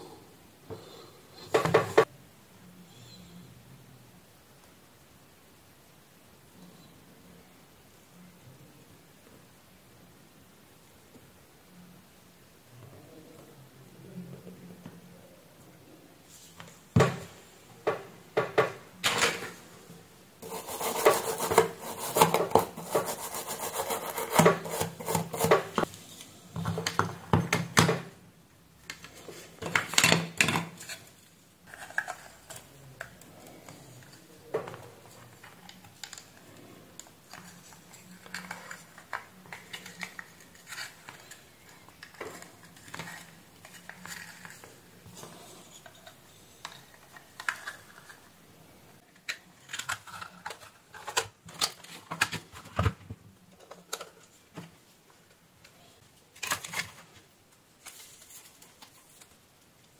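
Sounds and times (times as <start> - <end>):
brush scrubbing circuit board: 20.4 - 25.5.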